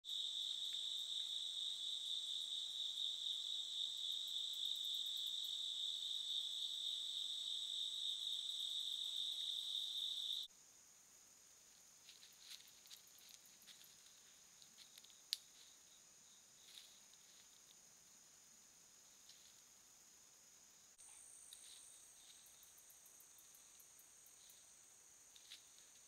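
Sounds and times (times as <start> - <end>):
night insects buzzing: 0.0 - 26.0
soft ticks: 14.6 - 15.5.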